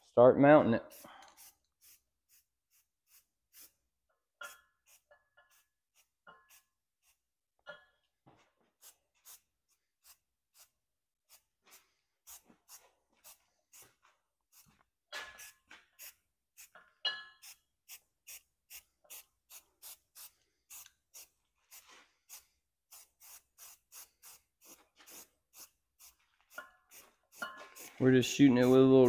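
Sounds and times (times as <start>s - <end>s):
spray can hissing in spurts: 0.9s - 3.8s, 4.8s - 7.2s, 8.8s - 16.7s, 17.4s - 29.0s
ringing metal clinks: 17.0s - 17.4s.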